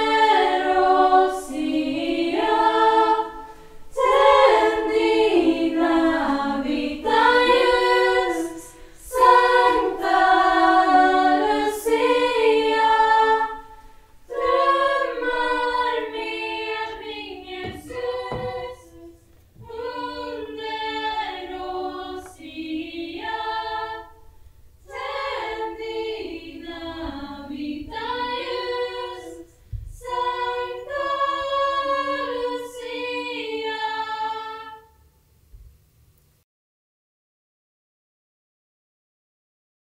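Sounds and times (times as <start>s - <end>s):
choir singing a cappella: 0.0s - 35.0s.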